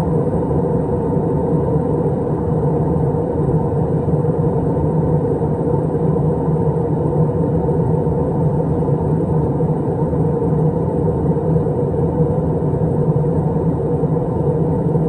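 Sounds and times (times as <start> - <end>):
airliner engines and rushing air: 0.0 - 15.0.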